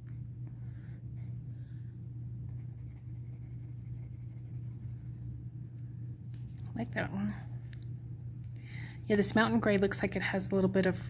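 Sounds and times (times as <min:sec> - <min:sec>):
low hum: 0:00.0 - 0:11.0
pencil scratching on paper: 0:02.5 - 0:05.5, 0:07.0 - 0:09.6.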